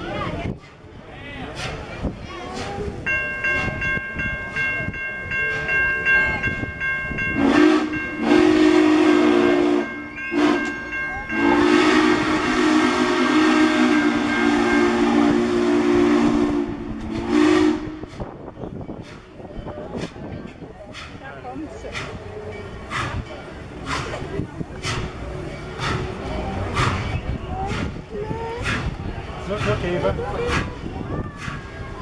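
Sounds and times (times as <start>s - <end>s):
steam whistle blowing: 7.4s - 18.3s
loud hiss of steam: 11.3s - 32.0s.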